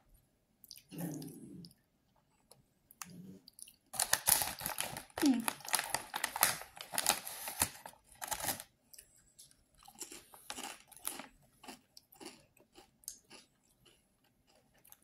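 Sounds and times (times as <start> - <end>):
person chewing crisps: 3.0 - 15.0
snack bag crinkling: 4.0 - 8.7, 9.8 - 15.0.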